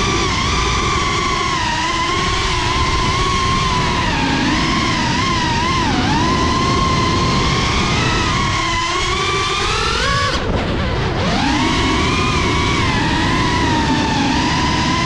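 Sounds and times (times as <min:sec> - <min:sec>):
low rushing noise: 0:00.0 - 0:15.0
quadcopter motors whining: 0:00.0 - 0:15.0.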